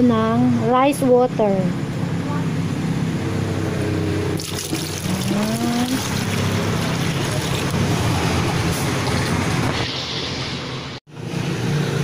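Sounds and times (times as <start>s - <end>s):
water pouring into bucket: 4.4s - 7.8s.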